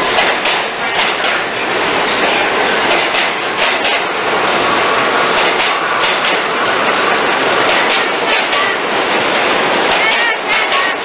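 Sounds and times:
subway train rumbling: 0:00.0 - 0:11.0
wheels clattering over rails: 0:00.0 - 0:11.0.

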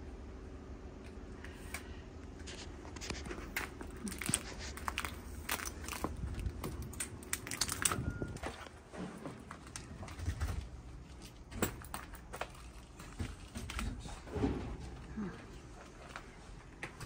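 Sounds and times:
footsteps crunching over debris: 0:02.4 - 0:15.0.

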